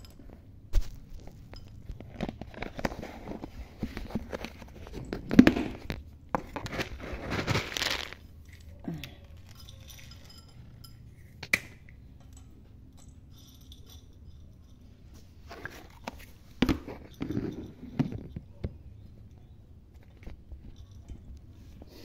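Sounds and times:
small clicks and clinks: 0:00.0 - 0:00.4, 0:01.1 - 0:05.3, 0:08.4 - 0:21.5
rustling and crinkling: 0:00.0 - 0:11.5, 0:14.6 - 0:22.0.

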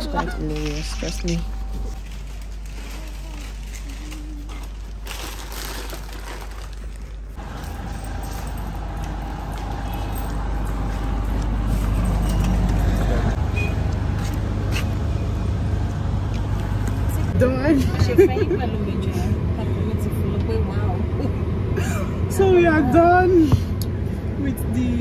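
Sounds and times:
road traffic rumble: 0:06.7 - 0:25.0.

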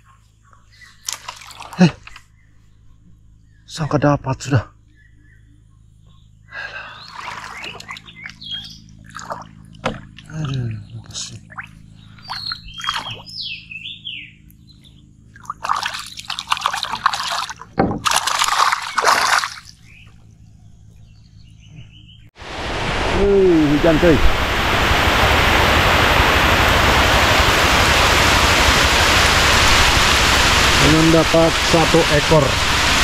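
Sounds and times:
faint low hum: 0:00.0 - 0:17.6
water splashes and knocks: 0:01.0 - 0:02.2, 0:09.0 - 0:10.6, 0:15.4 - 0:19.7
heavy rain hissing: 0:22.4 - 0:33.0
rushing noises: 0:22.4 - 0:33.0.

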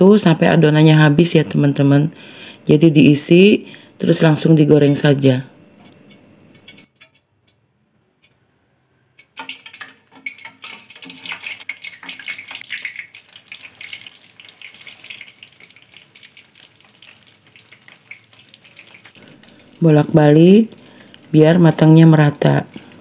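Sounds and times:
deep-frying in hot oil: 0:09.2 - 0:23.0.

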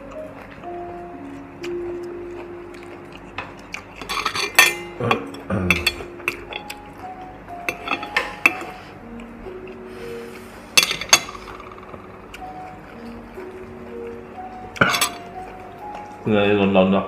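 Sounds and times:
soft background music: 0:00.0 - 0:17.0
metal chopsticks clinking on grill: 0:03.4 - 0:06.9, 0:07.7 - 0:08.7, 0:14.8 - 0:15.5.

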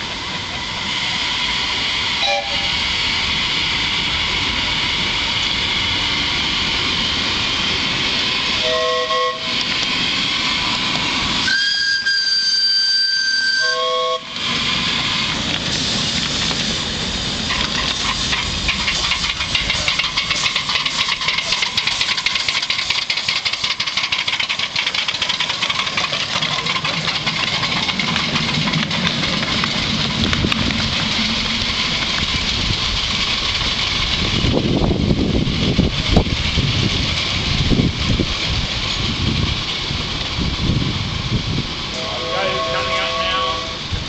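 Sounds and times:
steam exhaust chuffs: 0:00.0 - 0:44.0
steam hissing: 0:00.0 - 0:44.0
cars running over rails: 0:14.6 - 0:42.8.

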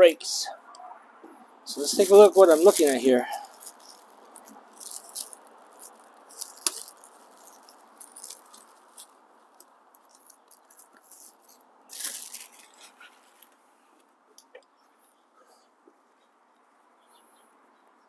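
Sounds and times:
plastic wrap crinkling: 0:01.7 - 0:13.6.

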